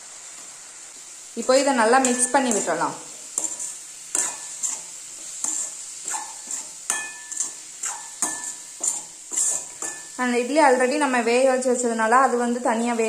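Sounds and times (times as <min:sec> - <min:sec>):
frying sizzle: 0:00.0 - 0:13.0
metal spoon scraping a pan: 0:01.6 - 0:11.0.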